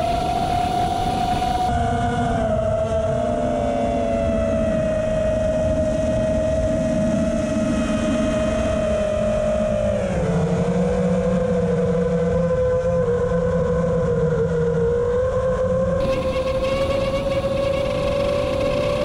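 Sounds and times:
drone motors whining: 0.0 - 1.7, 16.0 - 19.0
wind noise: 0.0 - 19.0.

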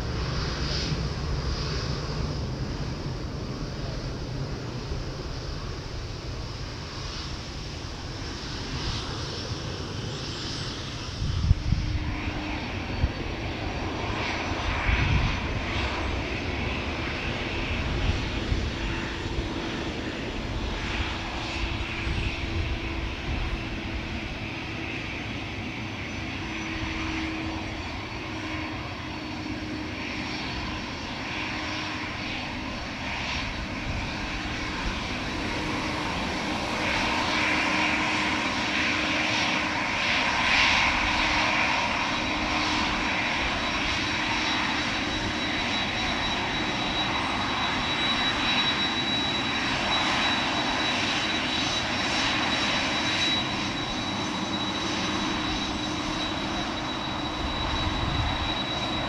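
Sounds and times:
airliner engines running: 0.0 - 59.0
thin high whine: 44.8 - 59.0.

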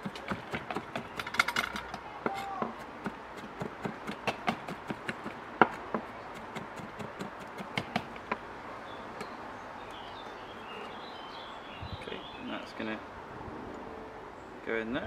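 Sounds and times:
knife chopping on wooden board: 0.0 - 8.4.

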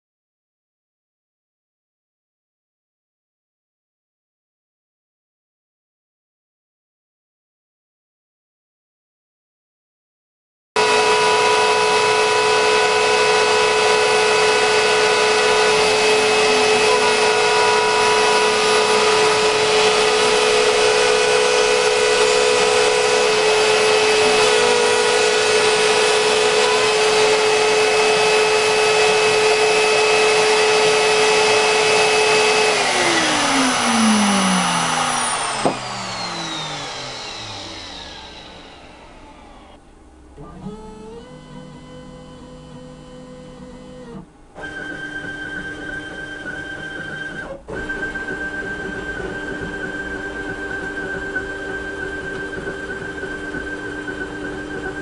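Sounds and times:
dust extraction vacuum noise: 10.8 - 39.8, 47.7 - 55.0
router spindle whining: 10.8 - 39.8, 40.4 - 55.0.

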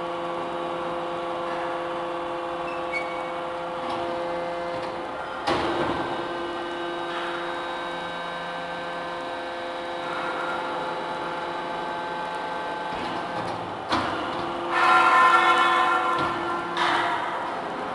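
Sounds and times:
hydraulic baler hum and whine: 0.0 - 17.9.

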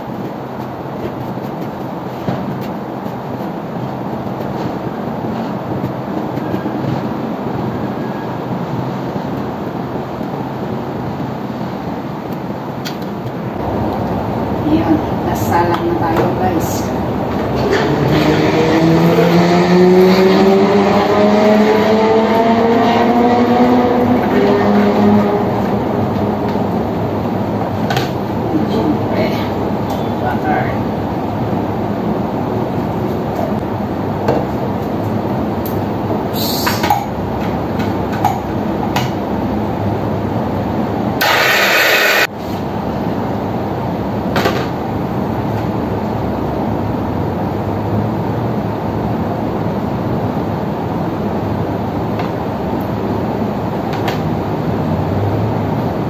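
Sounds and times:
steady rushing background noise: 0.0 - 56.0
blender motor whining: 41.2 - 42.3.

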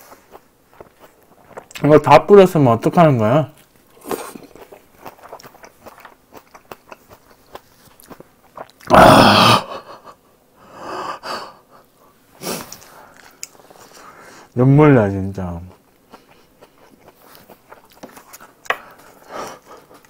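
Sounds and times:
close chewing with wet clicks: 0.0 - 2.1, 3.5 - 8.9, 12.7 - 14.0, 15.7 - 20.0
heavy breathing: 10.6 - 14.6, 18.7 - 20.0.

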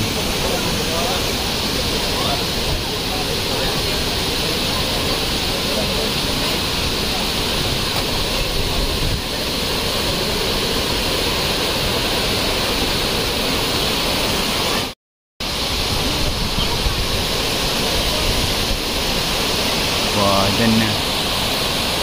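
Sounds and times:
waterfall rushing: 0.0 - 22.0.

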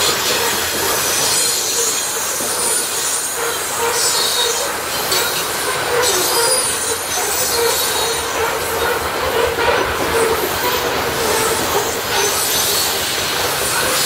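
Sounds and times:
train wheels rumbling on rail: 0.0 - 14.0
wheel squeal: 0.0 - 14.0.

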